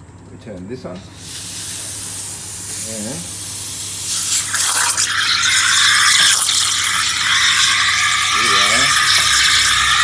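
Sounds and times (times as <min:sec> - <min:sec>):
steam wand hissing: 0:01.2 - 0:10.0
frothing water: 0:04.2 - 0:10.0.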